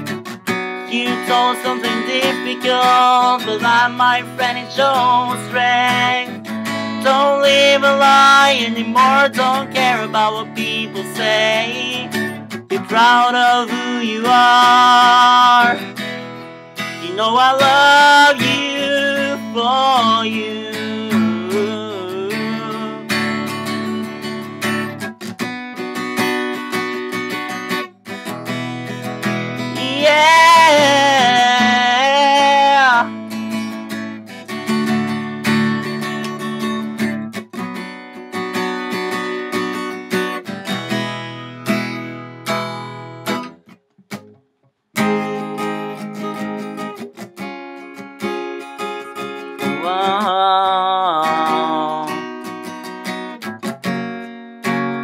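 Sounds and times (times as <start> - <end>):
acoustic guitar strumming: 0.0 - 55.0
person singing wordlessly: 0.8 - 16.0, 16.8 - 23.9, 29.3 - 33.7, 49.0 - 52.7.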